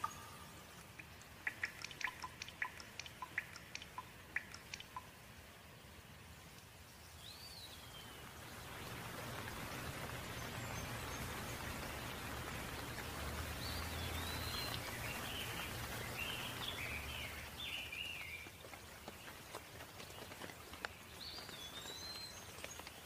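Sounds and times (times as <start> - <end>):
bird chirping: 0.0 - 5.1, 13.6 - 18.5
steady rain falling: 0.0 - 23.0.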